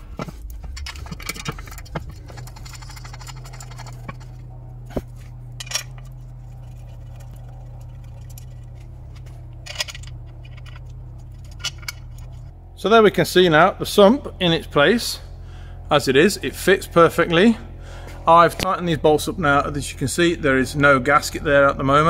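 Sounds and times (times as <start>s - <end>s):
metal clinks and scrapes: 0.0s - 12.5s
steady low hum: 0.0s - 22.0s.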